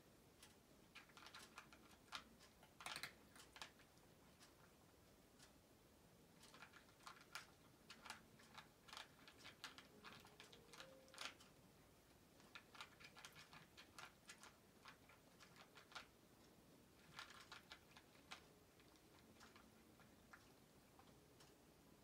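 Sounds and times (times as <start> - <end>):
cat crunching dry kibble: 0.9 - 3.8, 6.4 - 11.4, 12.4 - 16.1, 17.0 - 21.1.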